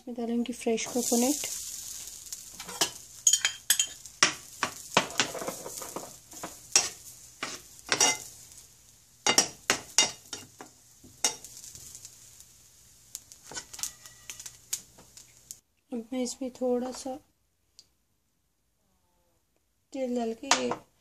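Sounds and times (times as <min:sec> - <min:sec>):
light sizzle: 0:00.0 - 0:18.0, 0:19.6 - 0:21.0
metal spoon scraping a frying pan: 0:00.8 - 0:08.3, 0:09.2 - 0:10.6, 0:11.2 - 0:11.7, 0:13.4 - 0:14.5.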